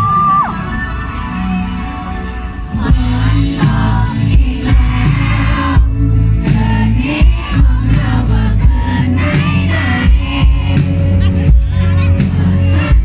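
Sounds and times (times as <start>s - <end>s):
pop-rock band playing: 0.0s - 13.0s
man singing: 6.4s - 13.0s.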